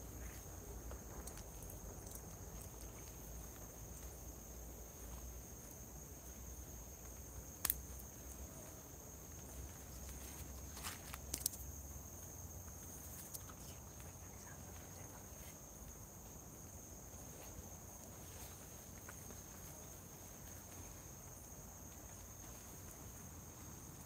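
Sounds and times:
night insect chorus: 0.0 - 24.0.

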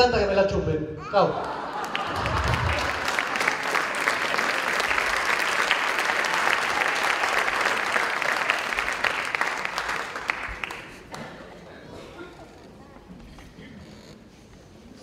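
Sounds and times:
audience applauding: 1.4 - 11.5.

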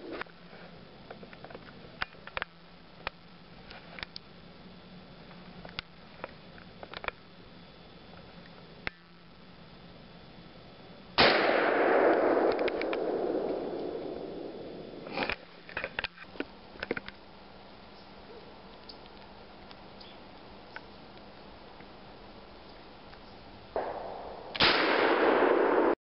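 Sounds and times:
gunshot: 11.2 - 15.2, 23.8 - 26.0.

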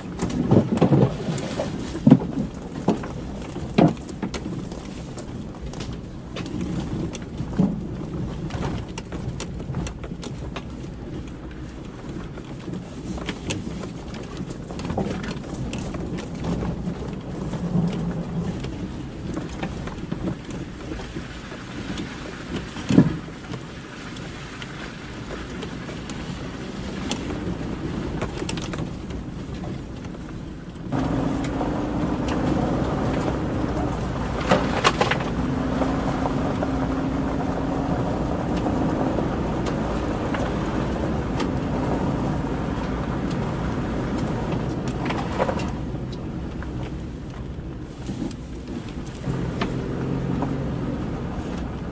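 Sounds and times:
branches scraping vehicle: 0.0 - 51.9
vehicle rumbling: 0.0 - 51.9
engine note: 30.9 - 43.5, 49.2 - 51.9.

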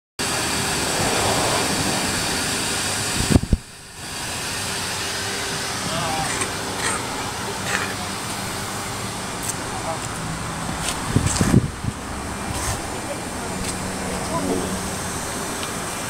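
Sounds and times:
wind rushing on microphone: 0.7 - 3.8, 10.5 - 16.0.

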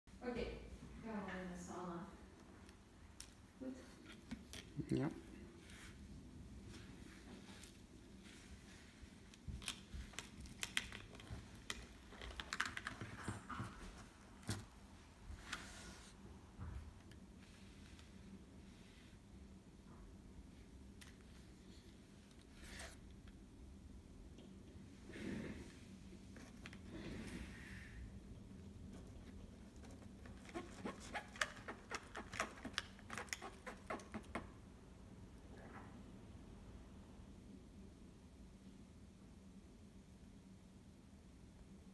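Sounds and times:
plastic parts clicking and rattling: 9.6 - 13.2.

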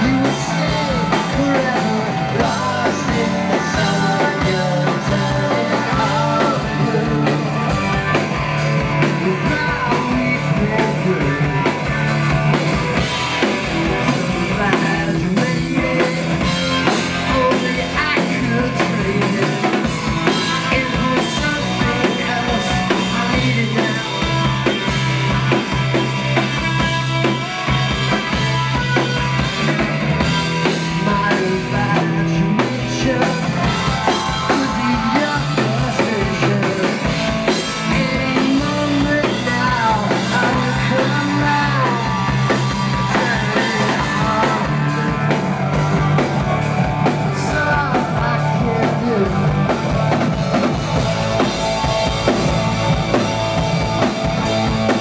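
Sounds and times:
man singing: 0.0 - 12.6, 13.8 - 25.1, 30.2 - 46.2, 47.0 - 50.3
bass guitar: 0.0 - 55.0
drum kit: 0.0 - 55.0
electric guitar: 0.0 - 55.0.

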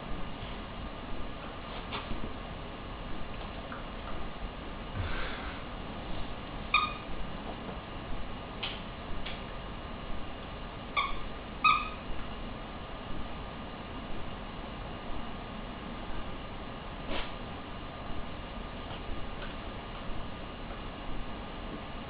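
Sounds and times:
squeaky toy squeaks: 6.7 - 7.1, 11.0 - 12.0.

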